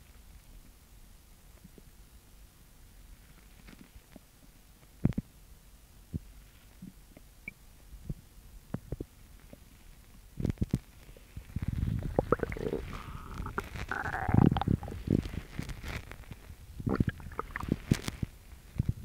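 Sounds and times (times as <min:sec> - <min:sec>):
stomach growling: 0:10.4 - 0:19.0.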